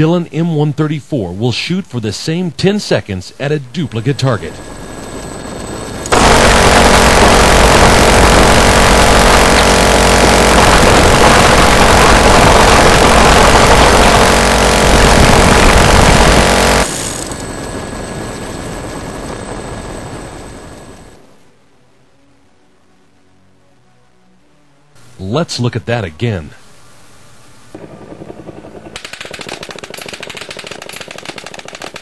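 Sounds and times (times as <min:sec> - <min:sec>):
helicopter engine and rotor: 0:04.4 - 0:21.2
gatling gun firing: 0:06.1 - 0:17.4, 0:27.8 - 0:32.0.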